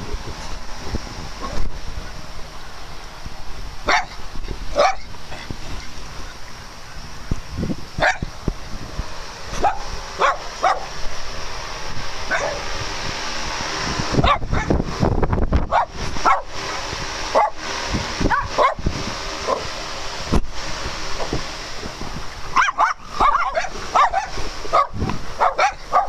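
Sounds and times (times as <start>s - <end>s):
dogs barking and yipping: 3.9s - 4.2s, 4.8s - 5.2s, 8.0s - 8.3s, 9.5s - 11.0s, 12.3s - 12.6s, 14.2s - 14.8s, 15.7s - 16.6s, 17.3s - 17.6s, 18.3s - 18.8s, 22.6s - 26.0s.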